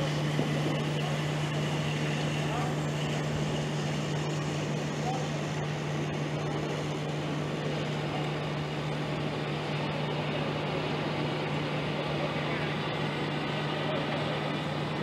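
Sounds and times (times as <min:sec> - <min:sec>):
constant low hum: 0:00.0 - 0:15.0
outdoor street noise: 0:00.0 - 0:15.0.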